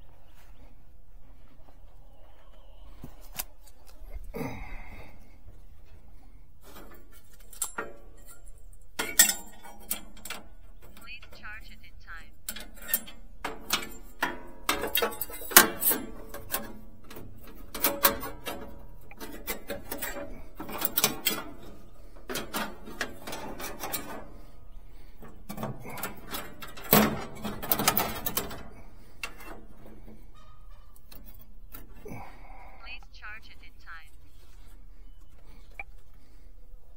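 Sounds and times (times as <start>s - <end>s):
metallic clicks and knocks: 6.6s - 11.6s, 12.4s - 32.0s.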